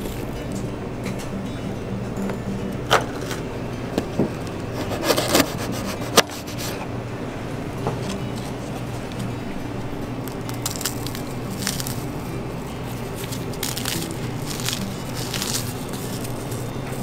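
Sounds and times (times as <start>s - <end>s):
steady low hum: 0.0s - 17.0s
cookies cracking and crunching: 10.1s - 17.0s.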